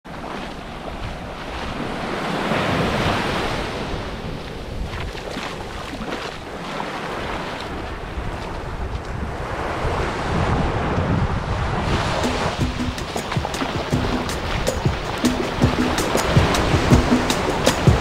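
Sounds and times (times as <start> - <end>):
wind buffeting microphone: 7.1 - 18.0.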